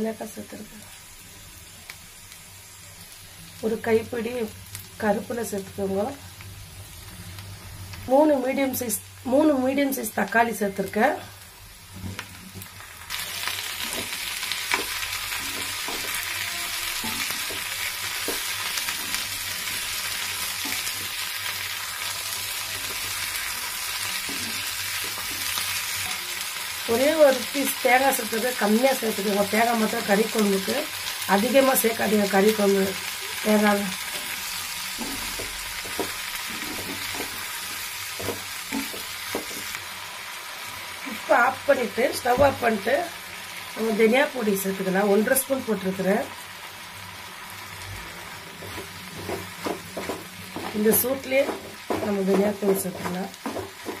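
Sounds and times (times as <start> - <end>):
food sizzling in oil: 0.0 - 54.0
wooden spatula stirring: 34.9 - 39.8, 48.6 - 54.0.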